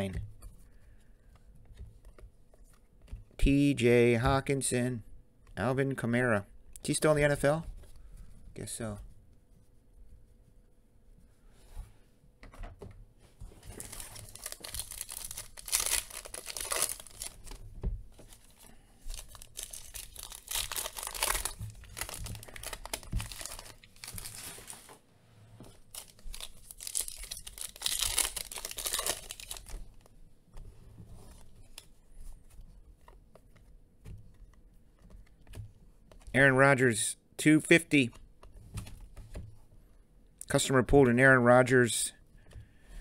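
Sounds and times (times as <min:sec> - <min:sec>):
foil wrappers tearing and crinkling: 0:13.7 - 0:17.6, 0:18.4 - 0:24.9, 0:25.8 - 0:29.8.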